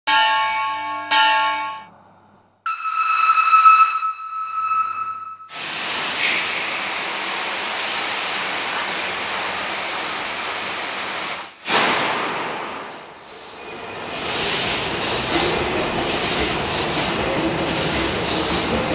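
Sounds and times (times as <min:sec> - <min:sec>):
ringing notes: 0:00.1 - 0:02.0, 0:02.7 - 0:05.5
high whistle-like tone: 0:02.7 - 0:05.5
compressed air hissing: 0:05.5 - 0:13.6.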